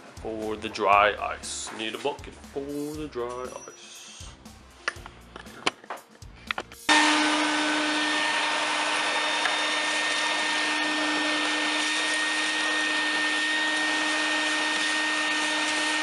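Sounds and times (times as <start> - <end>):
vacuum cleaner running: 6.9 - 16.0.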